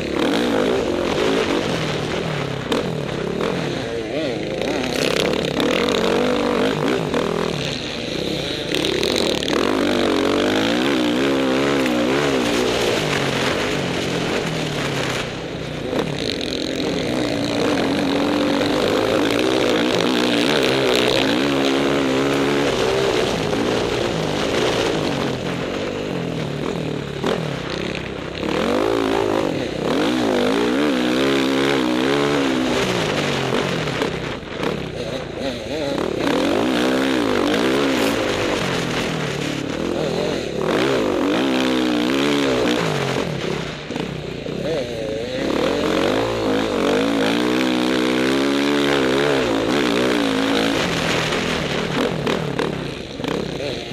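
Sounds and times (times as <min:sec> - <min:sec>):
motorcycle engine revving: 0:00.0 - 0:53.9.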